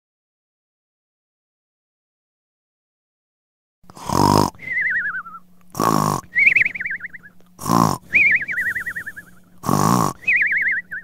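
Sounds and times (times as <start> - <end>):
faint steady hum: 3.8 - 11.0
cartoon rasping snore: 3.9 - 4.8, 5.7 - 6.4, 7.6 - 10.5.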